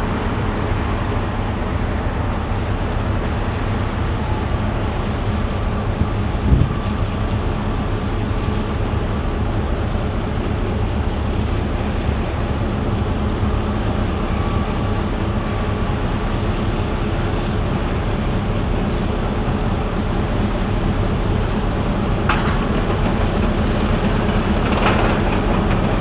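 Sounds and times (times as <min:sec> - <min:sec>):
diesel locomotive engine rumbling: 0:00.0 - 0:26.0.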